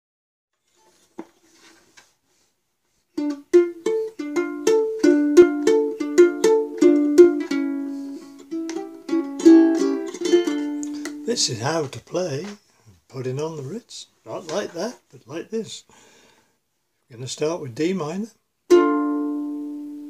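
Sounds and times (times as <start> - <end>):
ukulele strummed chords: 3.2 - 12.5, 18.7 - 20.0.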